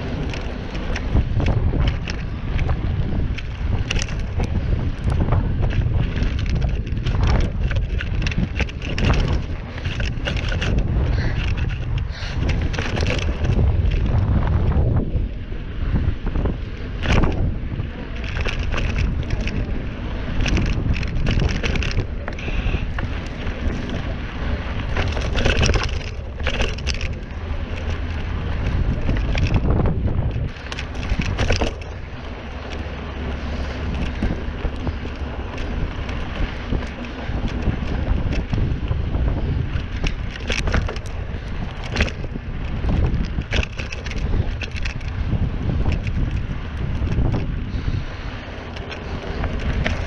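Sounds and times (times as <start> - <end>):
bike rattling over bumps: 0.0 - 50.0
wind buffeting microphone: 0.0 - 50.0.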